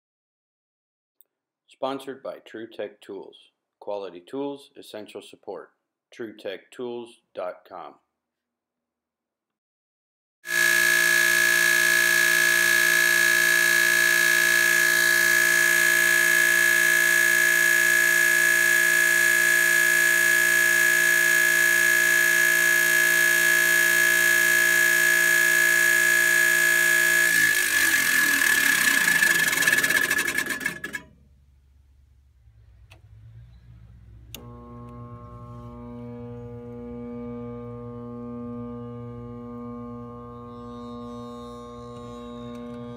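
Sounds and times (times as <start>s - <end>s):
furnace motor whining: 10.5s - 31.4s, 32.5s - 42.9s.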